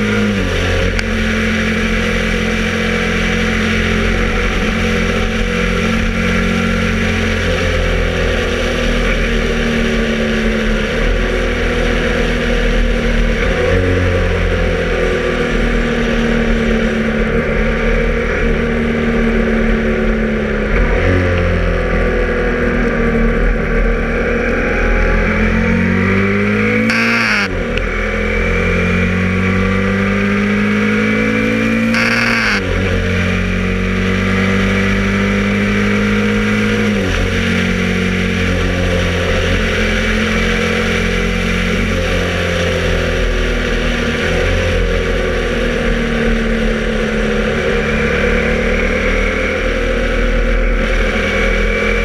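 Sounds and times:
motorcycle engine revving: 0:24.6 - 0:41.8.

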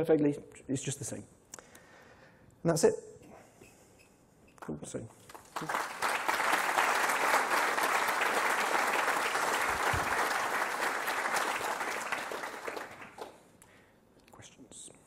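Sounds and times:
audience applause: 0:05.3 - 0:13.4.

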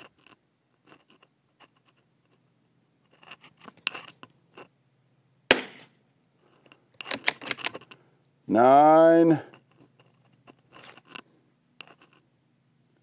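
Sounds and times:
rifle shot: 0:05.5 - 0:05.9
rifle bolt metallic clicks: 0:07.0 - 0:07.8.

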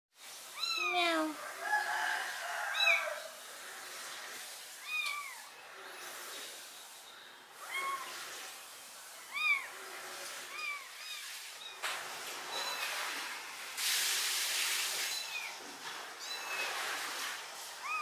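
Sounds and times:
kitten meowing: 0:00.6 - 0:01.4, 0:04.8 - 0:05.5, 0:07.6 - 0:08.2, 0:09.2 - 0:09.7, 0:10.5 - 0:11.3.

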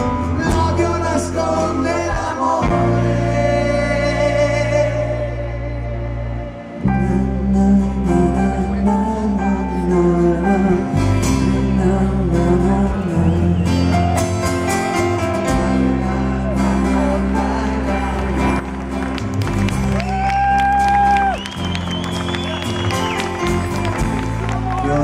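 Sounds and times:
drums: 0:00.0 - 0:04.2, 0:12.4 - 0:16.1, 0:19.2 - 0:24.9
acoustic guitar: 0:00.0 - 0:25.0
bass guitar: 0:00.0 - 0:25.0.

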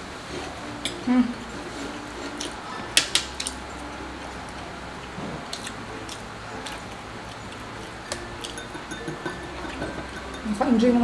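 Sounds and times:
metal spoons clinking on glass bowls: 0:08.1 - 0:11.0.

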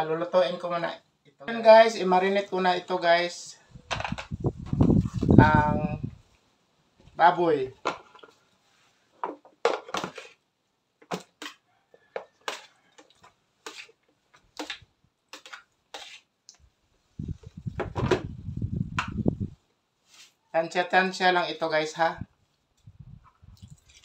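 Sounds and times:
rumbling and knocking in plastic tub: 0:03.9 - 0:05.5, 0:17.3 - 0:19.5
metal spoon scraping metal tray: 0:13.6 - 0:14.0, 0:15.3 - 0:16.3.

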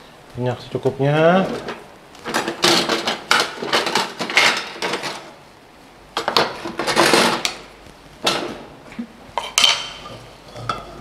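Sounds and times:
kitchen utensils and dishes clattering: 0:01.4 - 0:05.4, 0:06.2 - 0:08.6, 0:09.4 - 0:11.0.

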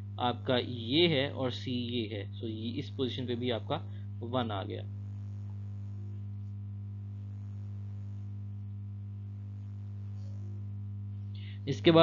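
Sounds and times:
mains hum: 0:00.0 - 0:12.0.

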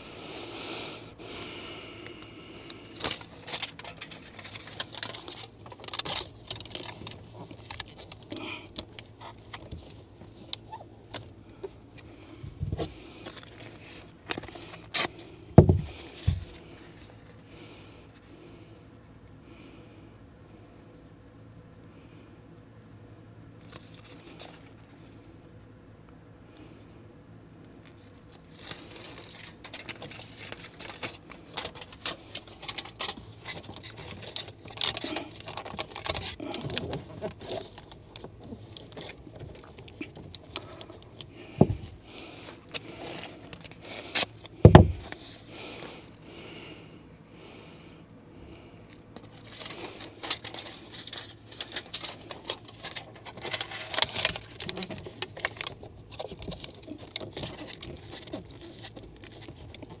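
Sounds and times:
foil tape crinkling and rustling: 0:02.0 - 0:18.4, 0:23.6 - 0:25.2, 0:27.8 - 0:46.2, 0:48.8 - 1:00.0
foil tape tearing: 0:02.6 - 0:11.3, 0:12.7 - 0:17.1, 0:28.0 - 0:45.9, 0:49.2 - 1:00.0.

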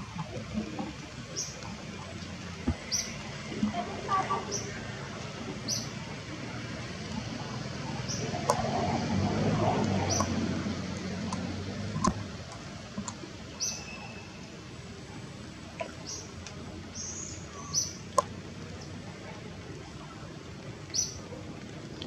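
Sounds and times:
outdoor background noise: 0:00.0 - 0:22.0.

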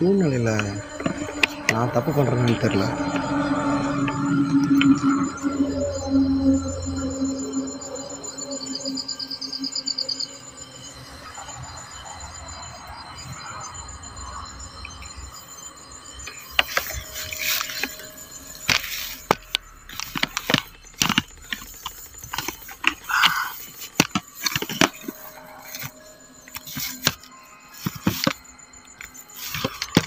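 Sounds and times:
crickets trilling: 0:00.0 - 0:30.0.

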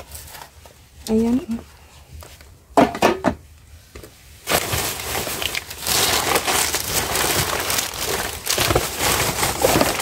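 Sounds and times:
plastic bags rustling and crinkling: 0:00.0 - 0:01.5, 0:04.1 - 0:10.0.

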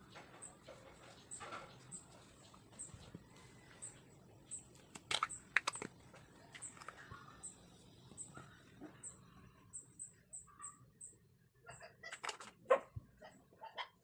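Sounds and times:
small animal chirping: 0:06.5 - 0:12.3.

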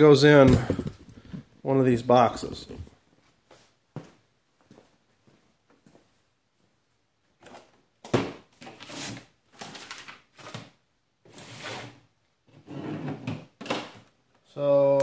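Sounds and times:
cardboard boxes on plastic table: 0:07.4 - 0:14.0.

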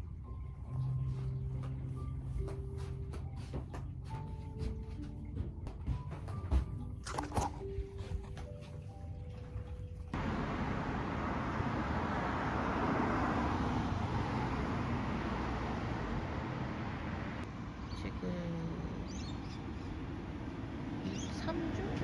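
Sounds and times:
car engine and tyre noise: 0:10.1 - 0:17.8
vehicle passing: 0:10.1 - 0:22.0.

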